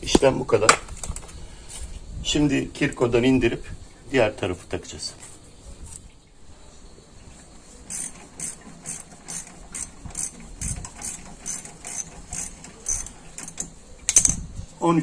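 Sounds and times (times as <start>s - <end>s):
ratchet wrench clicking: 7.9s - 14.4s.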